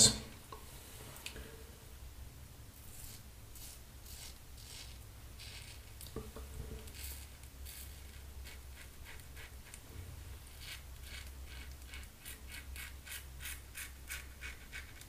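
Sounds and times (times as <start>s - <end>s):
razor scraping stubble: 2.9s - 6.1s.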